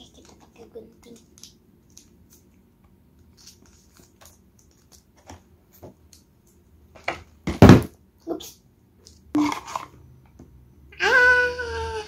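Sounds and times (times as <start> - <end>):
plastic packaging rustling: 3.2 - 5.4.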